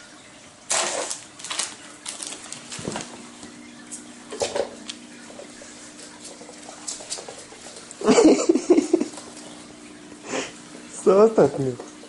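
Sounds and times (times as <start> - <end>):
scuffling and rustling: 0.7 - 8.1.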